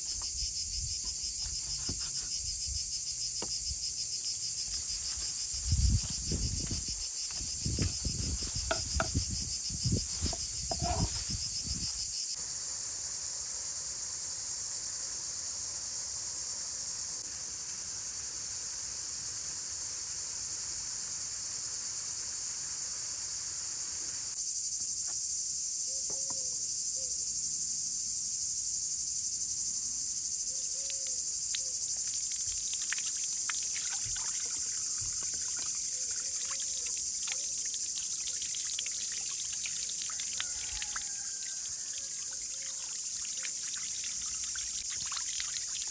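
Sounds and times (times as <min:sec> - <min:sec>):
insects chirring: 0:00.0 - 0:45.9.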